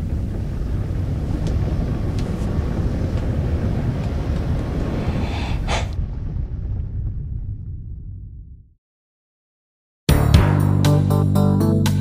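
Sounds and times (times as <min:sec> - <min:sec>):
steady deep rumble: 0:00.0 - 0:08.8
breathy rush: 0:04.7 - 0:06.1.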